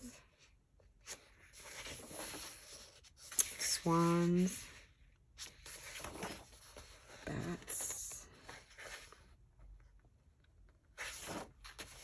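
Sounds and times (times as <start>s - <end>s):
page turning: 1.0s - 3.8s, 5.4s - 7.2s, 10.9s - 12.0s
paper rustling: 1.0s - 9.3s, 10.9s - 12.0s.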